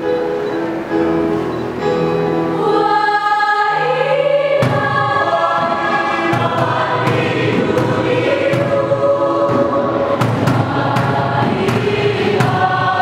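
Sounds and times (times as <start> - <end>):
choir singing held chords: 0.0 - 13.0
sharp percussive hits: 4.6 - 13.0.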